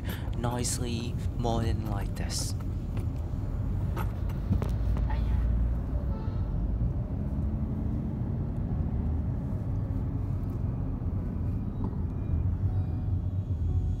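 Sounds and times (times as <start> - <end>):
vehicle rumble with road noise: 0.0 - 14.0.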